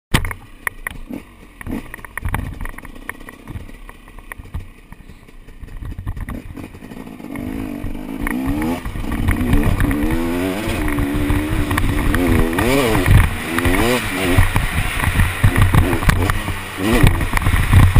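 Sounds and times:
knocks and rattles: 0.1s - 17.9s
motorcycle engine revving: 0.2s - 17.9s.

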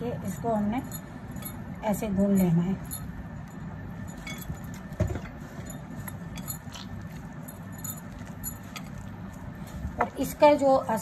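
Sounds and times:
hand kneading dough in a bowl: 4.1s - 11.0s
bangles jingling: 5.6s - 9.1s.

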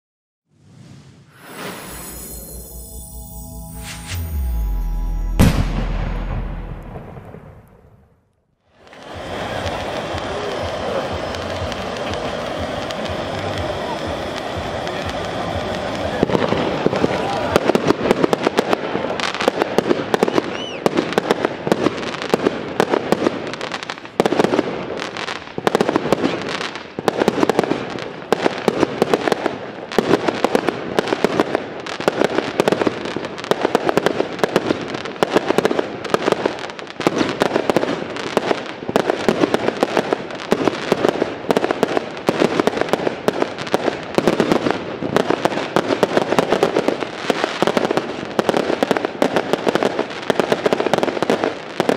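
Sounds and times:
crackling firework stars: 0.5s - 51.9s
firework shells bursting: 8.7s - 18.8s.

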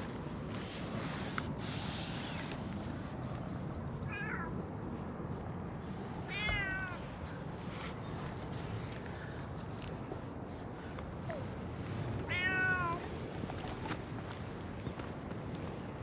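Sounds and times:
cat meowing: 4.1s - 4.6s, 6.3s - 7.0s, 12.2s - 13.1s.

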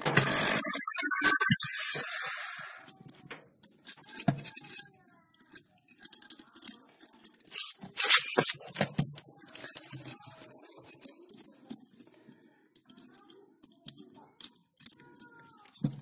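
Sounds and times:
drill press motor winding down: 0.0s - 2.9s.

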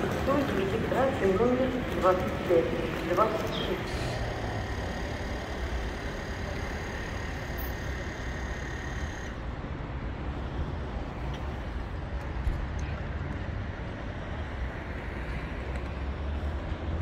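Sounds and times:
low rumble of road vehicle: 0.0s - 17.0s
faint high whining tones: 1.1s - 9.6s.

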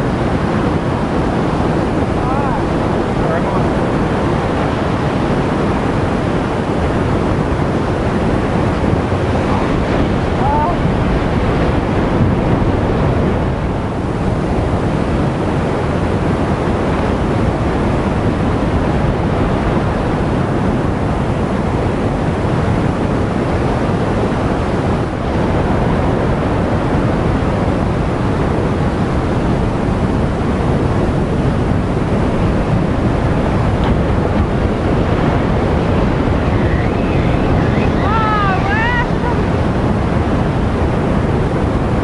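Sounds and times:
ocean surf on rocks: 0.0s - 42.0s
wind buffeting microphone: 0.0s - 42.0s.

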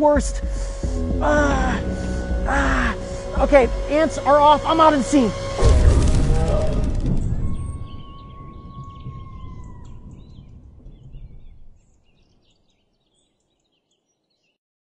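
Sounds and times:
low rumble: 0.2s - 11.9s
faint bird chirps: 7.2s - 14.6s.

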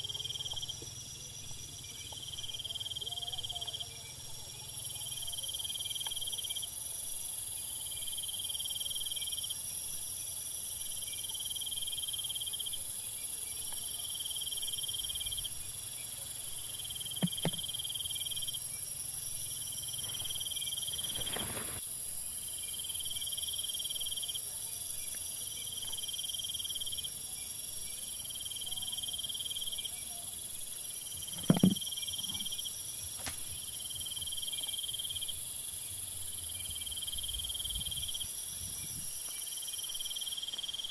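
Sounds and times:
insects trilling: 0.0s - 40.9s
short knocks: 31.3s - 31.8s.

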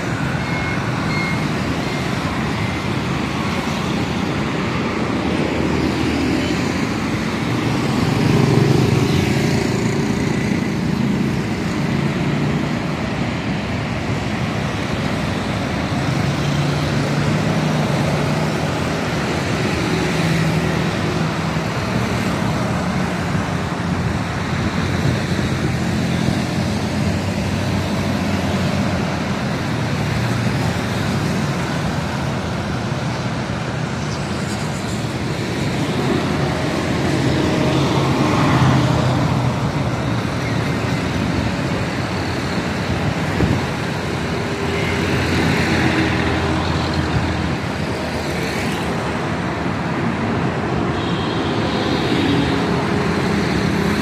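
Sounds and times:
motorcycles passing: 0.0s - 54.0s
road traffic passing: 0.0s - 54.0s.

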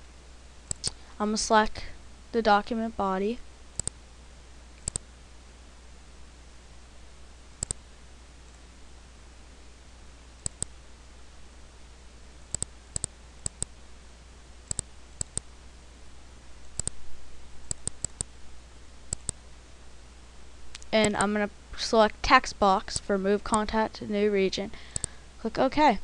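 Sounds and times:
steady low hum: 0.0s - 26.0s
computer mouse button clicks: 4.8s - 5.0s, 7.6s - 7.8s, 10.4s - 10.7s, 12.5s - 13.7s, 14.7s - 15.5s, 16.8s - 17.0s.

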